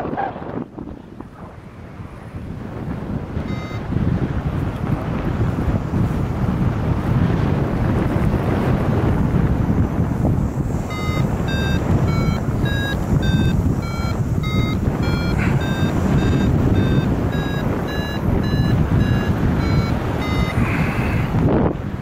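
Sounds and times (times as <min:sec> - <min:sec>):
wind rush over microphone: 0:00.0 - 0:22.0
variometer beeps: 0:03.4 - 0:04.0, 0:10.8 - 0:20.8.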